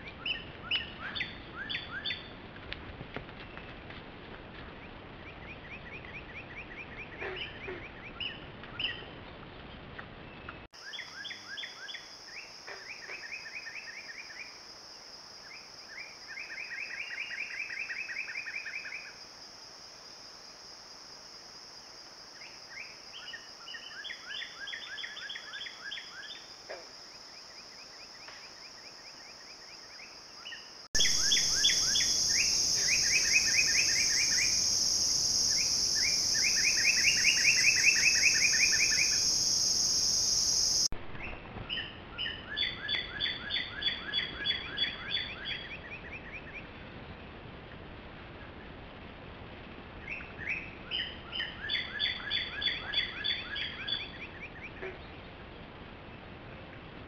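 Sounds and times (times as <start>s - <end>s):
songbirds chirping: 27.2s - 46.8s
high-pitched insect buzz: 31.0s - 40.9s.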